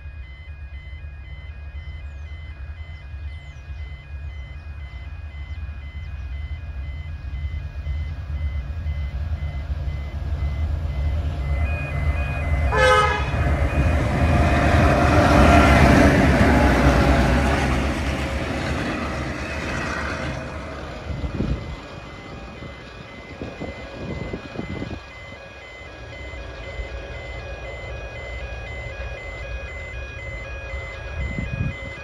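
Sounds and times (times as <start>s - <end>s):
diesel locomotive engine rumble: 0.0s - 32.0s
locomotive horn toot: 12.7s - 17.4s.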